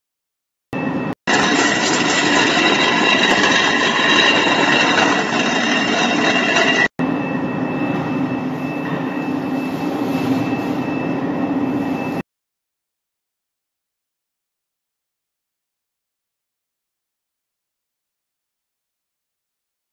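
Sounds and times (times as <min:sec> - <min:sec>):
concrete floor grinders grinding: 0:01.3 - 0:07.0.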